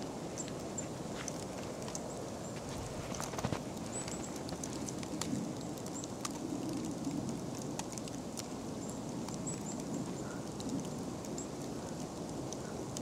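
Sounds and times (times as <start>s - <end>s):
paws thudding in deep snow: 2.5s - 4.8s.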